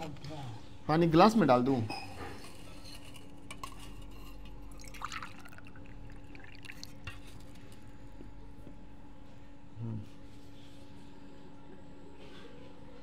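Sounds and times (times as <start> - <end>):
water trickling into steel tumbler: 4.7 - 7.4.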